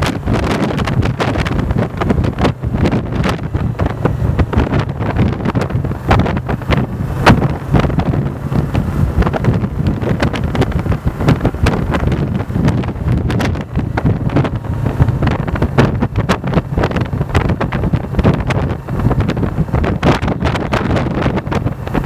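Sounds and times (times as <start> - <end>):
motorcycle engine drone: 0.0 - 22.0
wind buffeting microphone: 0.0 - 22.0.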